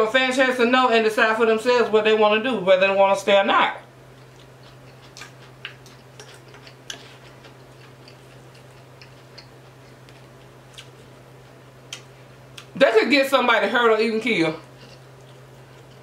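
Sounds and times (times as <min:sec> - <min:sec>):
steady low hum: 0:00.0 - 0:16.0
chewing: 0:04.1 - 0:12.7, 0:14.6 - 0:16.0.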